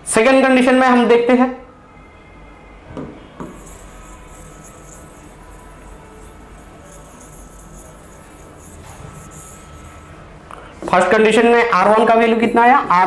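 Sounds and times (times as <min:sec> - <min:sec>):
thin steady tone: 0:01.9 - 0:10.4.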